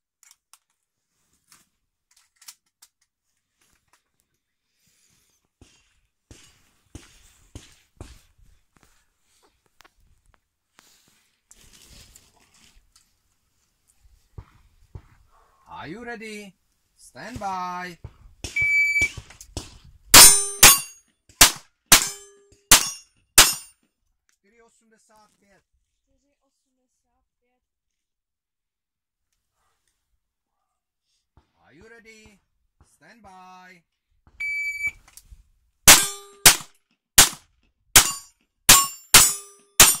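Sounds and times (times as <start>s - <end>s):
shot timer beep: 18.6s - 19.1s, 34.4s - 35.0s
steel target plates ringing: 20.2s - 21.0s, 21.9s - 23.7s, 35.9s - 36.6s, 38.0s - 40.0s
pistol shots: 20.2s - 23.6s, 35.9s - 37.4s, 38.0s - 40.0s.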